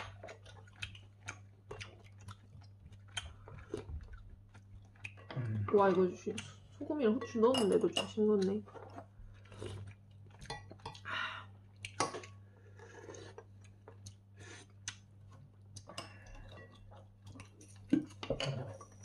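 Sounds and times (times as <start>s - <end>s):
chewing: 0.0s - 6.9s, 8.3s - 11.1s, 11.7s - 19.0s.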